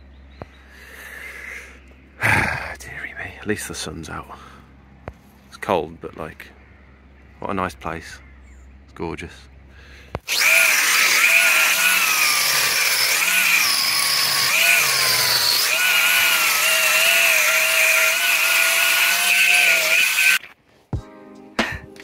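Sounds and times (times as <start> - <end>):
angle grinder cutting mortar: 10.2 - 20.6.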